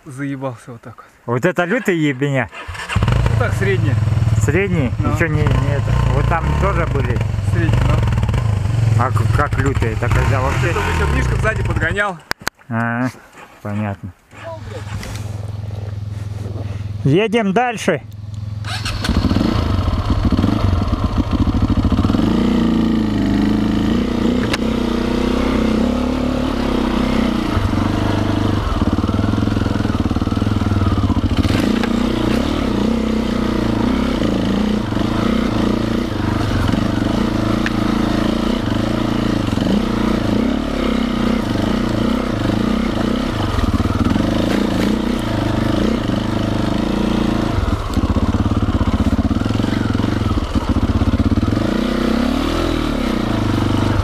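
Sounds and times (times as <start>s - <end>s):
motorcycle engine revving: 2.5s - 12.1s, 14.4s - 17.0s, 18.0s - 54.0s.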